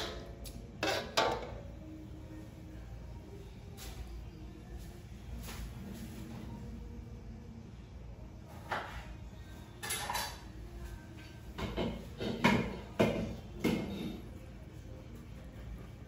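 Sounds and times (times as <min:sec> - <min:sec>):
utensils and dishes clinking: 0:00.0 - 0:01.7, 0:09.7 - 0:10.6, 0:11.5 - 0:14.5.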